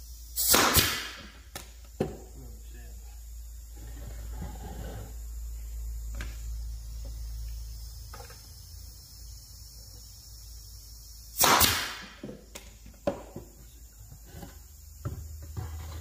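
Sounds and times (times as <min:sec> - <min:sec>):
nail gun shot: 0:00.4 - 0:01.7, 0:11.4 - 0:12.2.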